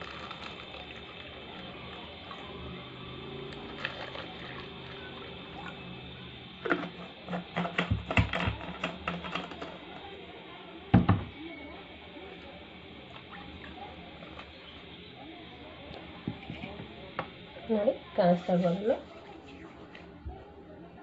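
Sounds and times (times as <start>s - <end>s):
plastic bottle clicks and knocks: 6.7s - 9.6s
bottle thump set down: 10.9s - 11.3s.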